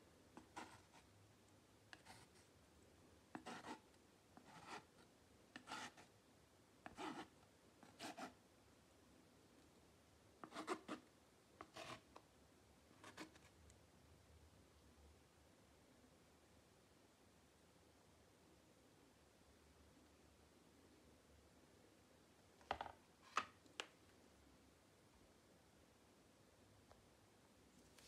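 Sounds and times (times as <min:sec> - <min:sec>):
palette knife scraping paint: 0:00.4 - 0:01.1, 0:03.3 - 0:06.1, 0:06.8 - 0:08.4, 0:10.4 - 0:12.1, 0:13.0 - 0:13.5.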